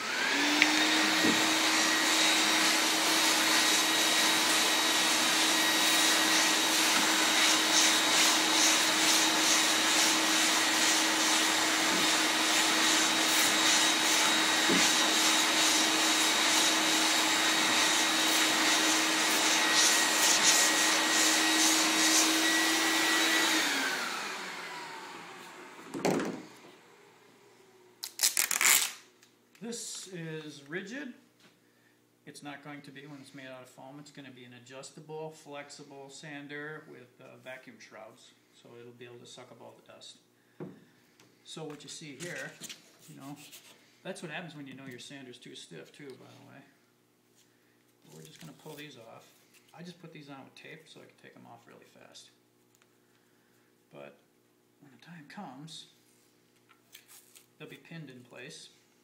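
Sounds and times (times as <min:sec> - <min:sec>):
vacuum motor spinning down: 0:00.0 - 0:27.2
shop vacuum whining: 0:00.0 - 0:28.8.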